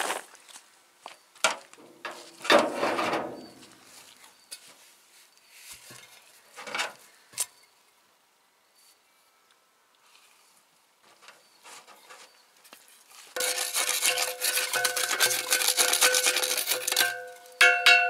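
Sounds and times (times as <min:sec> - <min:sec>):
metal pipe rattling scrape: 0:13.4 - 0:18.0
metal pipe knocking: 0:16.9 - 0:18.0.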